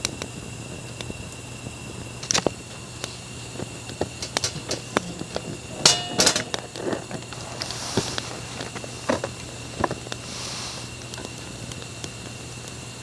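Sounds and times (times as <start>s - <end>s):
wood fire crackling and popping: 0.0s - 13.0s
metallic clatter: 4.2s - 7.8s.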